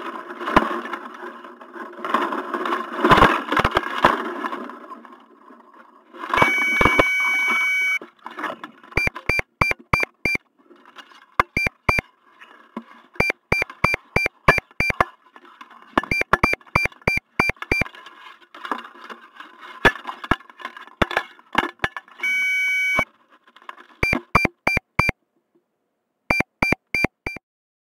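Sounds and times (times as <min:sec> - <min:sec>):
altimeter long high tone: 0:06.4 - 0:08.0
altimeter short beeps: 0:06.4 - 0:08.0, 0:09.0 - 0:10.4, 0:11.4 - 0:12.0, 0:13.2 - 0:15.0, 0:16.0 - 0:17.8, 0:22.2 - 0:23.0, 0:24.0 - 0:25.2, 0:26.3 - 0:27.4.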